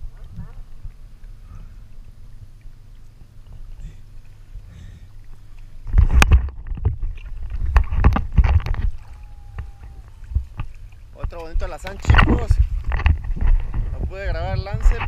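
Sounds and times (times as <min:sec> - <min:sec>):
sea water sloshing and splashing: 0:00.0 - 0:15.0.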